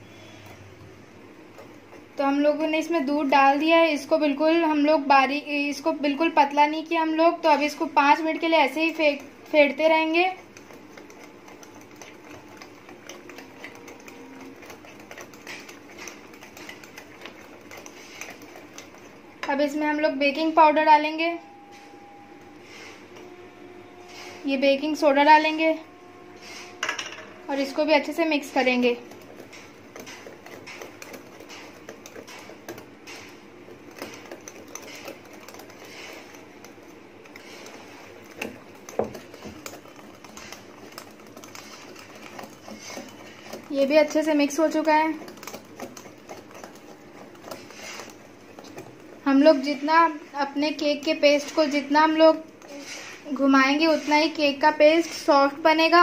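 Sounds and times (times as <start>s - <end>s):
whisk beating batter in bowl: 0.0s - 21.2s, 27.5s - 56.0s.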